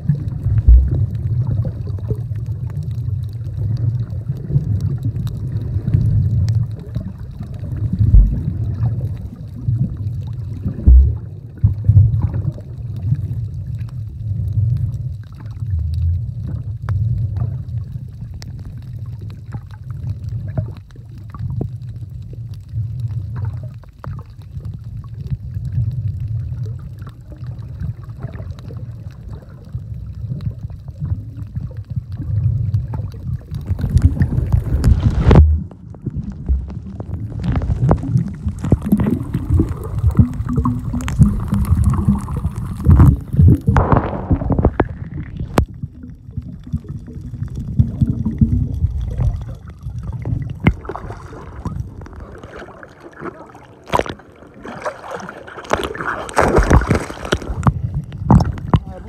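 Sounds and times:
underwater water rumble: 0.0s - 59.0s
sharp thumps: 42.8s - 45.7s.

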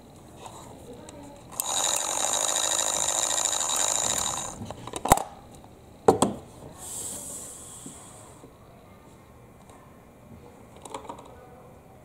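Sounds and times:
small electric motor whining: 1.5s - 4.7s.

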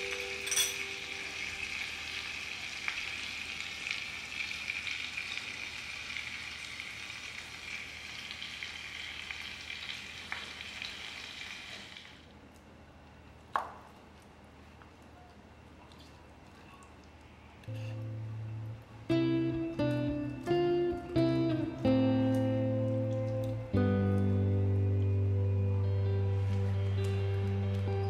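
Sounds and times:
egg sizzling: 0.0s - 12.2s.

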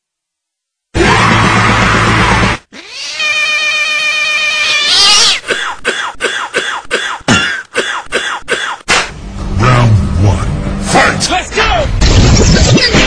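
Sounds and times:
cat yowling: 2.7s - 5.4s
cat meowing: 2.8s - 5.4s.

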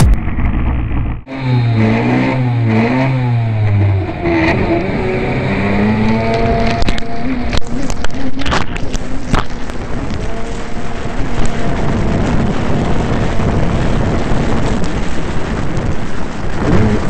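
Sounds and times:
jetski engine revving: 1.3s - 17.0s
water rushing: 2.9s - 13.9s.

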